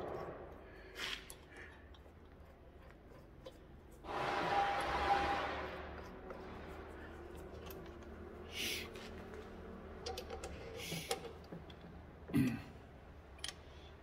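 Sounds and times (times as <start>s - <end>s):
metal clicks and scrapes: 0.0s - 8.3s, 10.0s - 12.0s.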